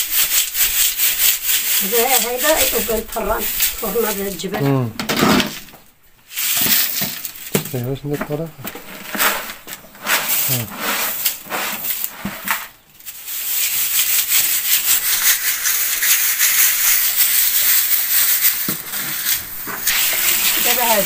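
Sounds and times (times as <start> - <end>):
grit pouring from bucket: 0.0 - 4.5, 8.8 - 21.0
dry rattling hiss of sifting: 0.0 - 4.7, 5.4 - 7.9, 8.6 - 21.0.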